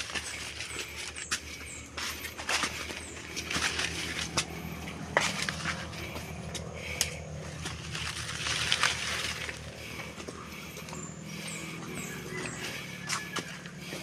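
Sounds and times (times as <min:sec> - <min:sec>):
footsteps crunching through leaves: 0:00.0 - 0:14.0
twigs snapping and crackling: 0:06.6 - 0:09.8.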